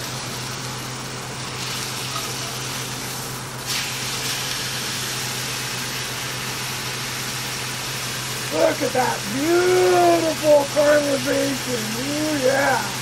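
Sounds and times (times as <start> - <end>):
meat sizzling in a pan: 0.0 - 13.0.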